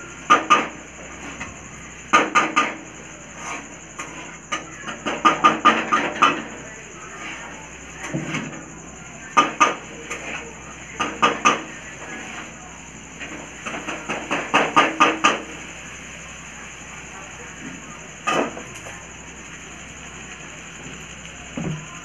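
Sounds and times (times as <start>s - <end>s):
metal spatula scraping a wok: 2.2s - 6.5s, 9.4s - 10.4s, 11.0s - 12.6s.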